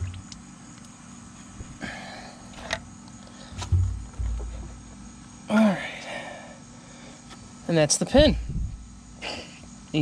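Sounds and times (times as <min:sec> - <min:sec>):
heavy low thump and rumble: 0:03.5 - 0:05.0, 0:08.1 - 0:09.0.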